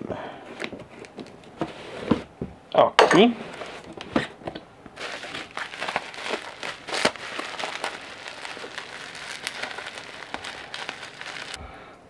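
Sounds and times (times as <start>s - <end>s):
bubble wrap crinkling: 4.9s - 11.6s.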